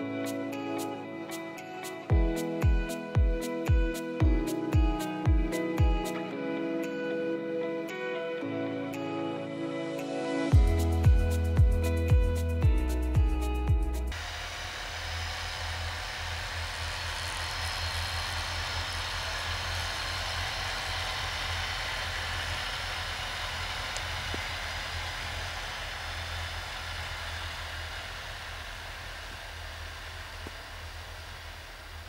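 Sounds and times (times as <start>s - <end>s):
snowmobile engine driving past: 14.1s - 32.0s.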